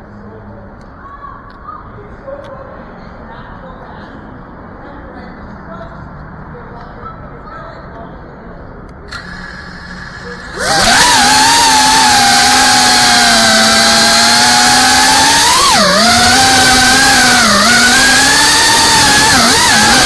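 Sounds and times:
drone motors whining: 0:09.2 - 0:20.0.

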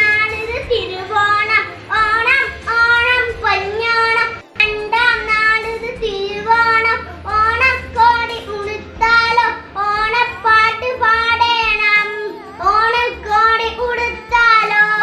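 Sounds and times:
boy singing: 0:00.0 - 0:15.0.

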